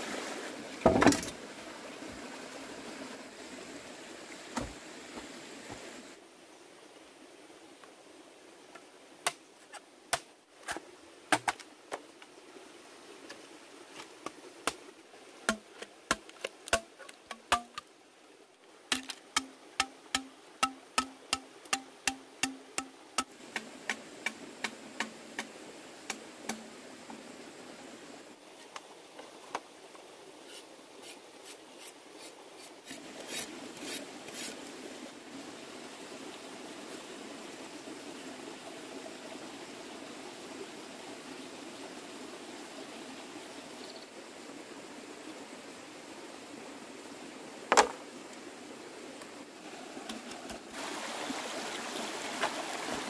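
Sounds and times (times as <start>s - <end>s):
sharp knocks on wood: 47.7s - 48.0s.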